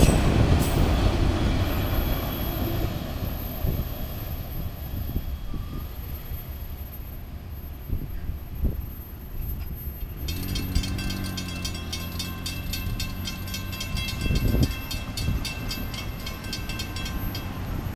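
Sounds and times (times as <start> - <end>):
car driving across tracks: 0.0 - 7.9, 9.0 - 17.9
freight train rumble: 0.0 - 17.9
crossing warning bell ringing: 8.9 - 17.9.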